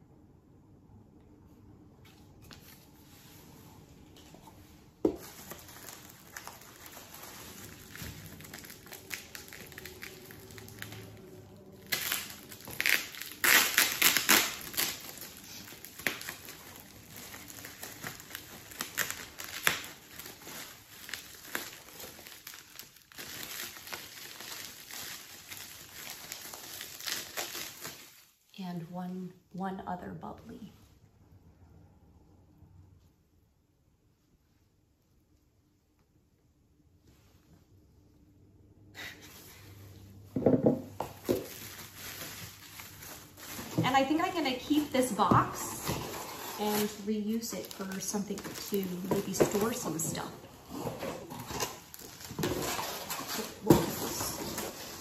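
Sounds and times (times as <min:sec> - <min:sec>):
bubble wrap crinkling: 0:02.3 - 0:28.6, 0:40.8 - 0:55.0.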